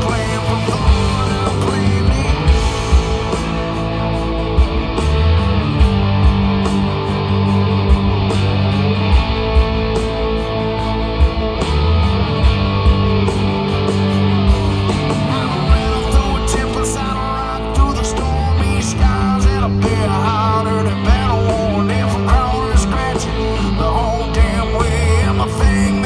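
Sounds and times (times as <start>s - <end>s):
drum hits: 0.0s - 16.9s
live rock band playing: 0.0s - 26.0s.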